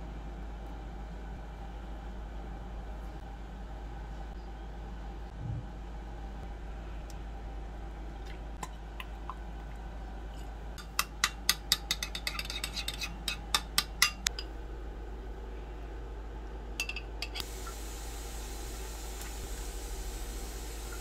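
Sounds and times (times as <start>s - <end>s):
metal spoon clinking against bowl: 10.8s - 14.5s.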